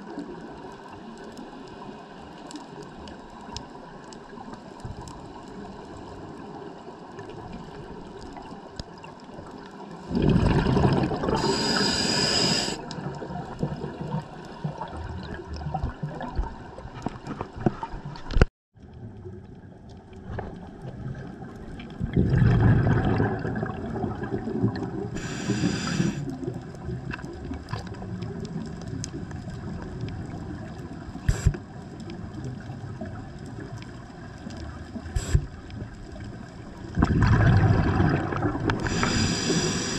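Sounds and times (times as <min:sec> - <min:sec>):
bubbling exhalations underwater: 0:10.0 - 0:16.6, 0:21.9 - 0:30.0, 0:36.9 - 0:39.9
hissing regulator breath: 0:11.3 - 0:12.9, 0:25.2 - 0:26.4, 0:31.3 - 0:31.6, 0:35.2 - 0:35.5, 0:38.8 - 0:39.9.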